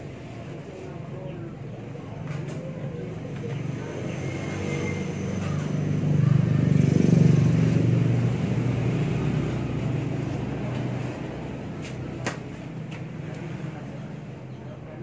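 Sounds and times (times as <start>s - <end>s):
vehicle engine passing by: 2.7s - 14.4s.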